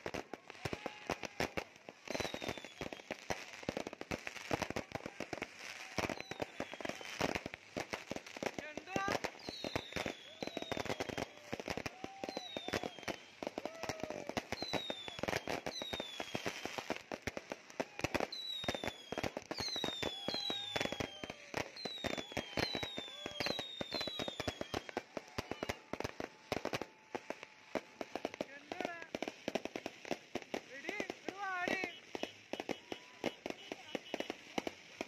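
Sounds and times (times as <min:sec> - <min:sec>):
fireworks crackling and banging: 0:00.0 - 0:35.0
falling whistles: 0:09.4 - 0:11.3, 0:12.2 - 0:13.4, 0:18.3 - 0:25.9.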